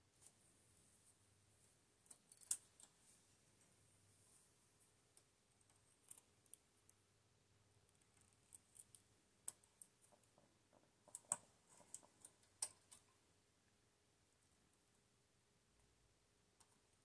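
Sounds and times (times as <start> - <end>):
metal tool clicking on needles: 2.0 - 2.9, 5.1 - 7.0, 7.9 - 10.4, 11.1 - 13.2.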